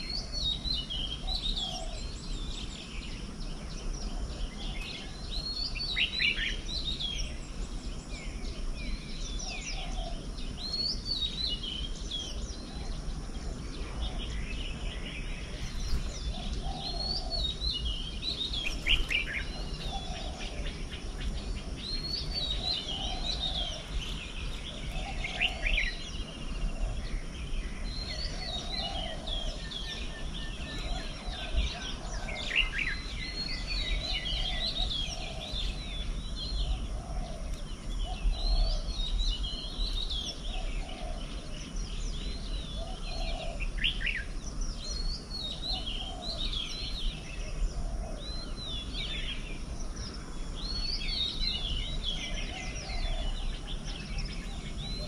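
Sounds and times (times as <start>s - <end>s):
birds chirping and whistling: 0.0s - 55.0s
lower bird call: 0.0s - 55.0s.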